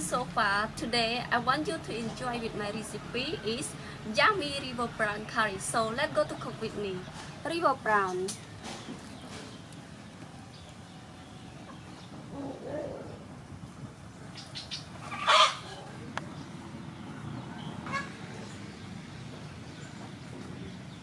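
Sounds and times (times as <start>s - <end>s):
fowl clucking: 14.7s - 16.0s, 17.8s - 18.1s.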